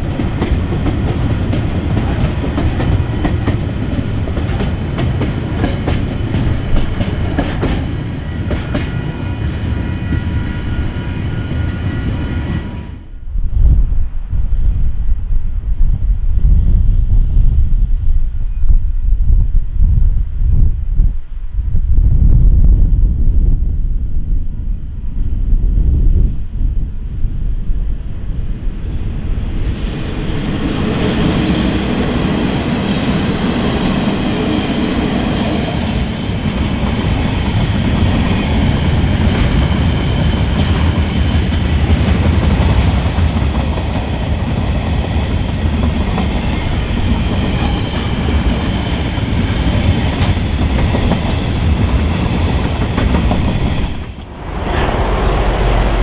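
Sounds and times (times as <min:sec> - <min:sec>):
wheels clacking on rails: 0:00.0 - 0:09.2, 0:29.6 - 0:54.3
diesel locomotives passing: 0:00.0 - 0:13.2, 0:27.9 - 0:56.0
distant train: 0:00.0 - 0:19.8, 0:21.2 - 0:56.0.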